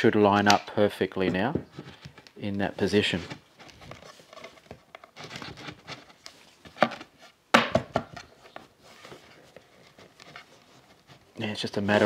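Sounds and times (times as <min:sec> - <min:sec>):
sharp knock of wooden panels: 0:07.5 - 0:08.1.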